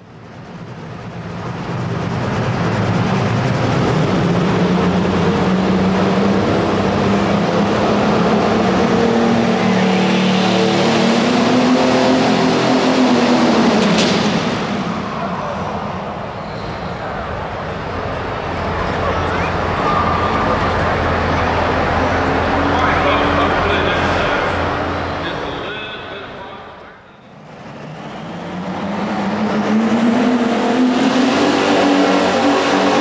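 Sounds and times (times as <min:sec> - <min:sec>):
tractor engine under full load: 0:00.0 - 0:26.4.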